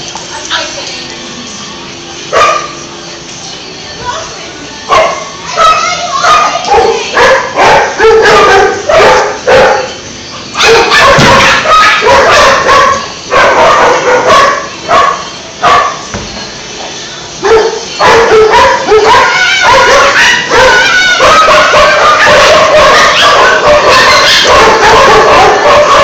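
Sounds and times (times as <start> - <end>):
dogs barking and yipping: 2.3 - 2.8, 4.9 - 16.1, 17.4 - 26.0.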